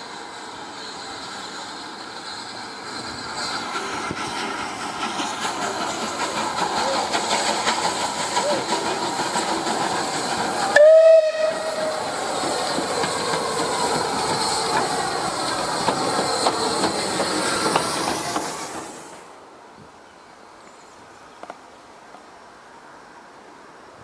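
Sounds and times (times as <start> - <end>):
steam hissing: 0.0 - 19.6
steam locomotive whistle blast: 10.5 - 12.8.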